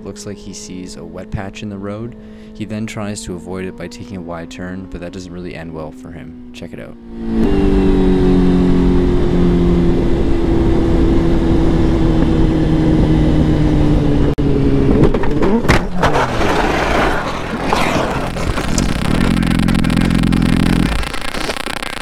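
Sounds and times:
motorcycle engine: 0:00.0 - 0:21.2
wind rush: 0:07.2 - 0:15.0
crash clattering and scraping: 0:15.0 - 0:20.2.

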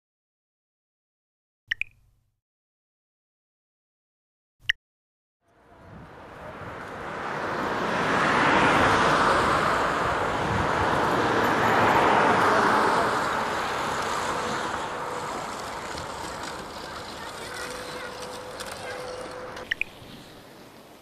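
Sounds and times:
cars passing close by: 0:05.5 - 0:20.3.

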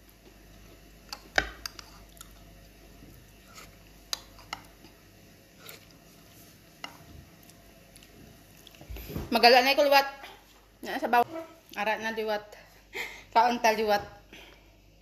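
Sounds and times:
person chewing food: 0:00.1 - 0:08.9.

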